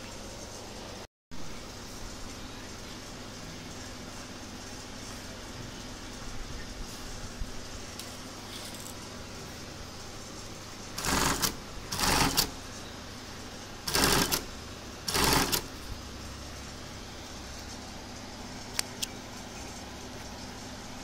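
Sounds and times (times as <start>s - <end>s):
sewing machine stitching: 11.0s - 12.6s, 13.9s - 15.8s.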